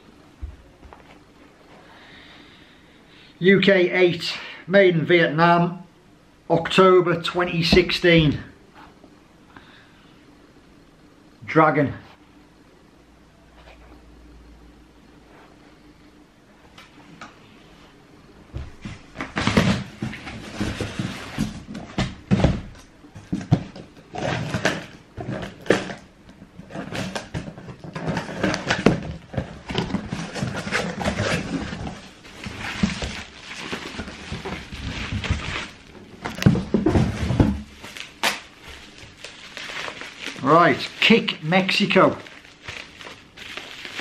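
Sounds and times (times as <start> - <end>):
paper and cardboard rustling: 18.6 - 44.0.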